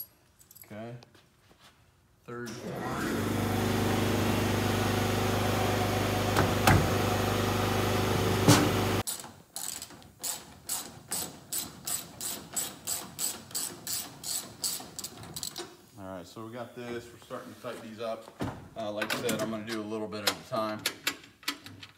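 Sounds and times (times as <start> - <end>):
loud machine hum: 2.6 - 9.0
ratchet wrench clicking: 9.1 - 15.7.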